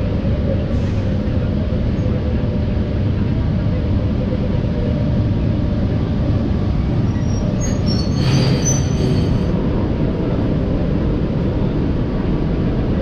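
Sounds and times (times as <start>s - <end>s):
locomotive low rumble: 0.0s - 13.0s
high metallic squeal: 7.2s - 9.5s.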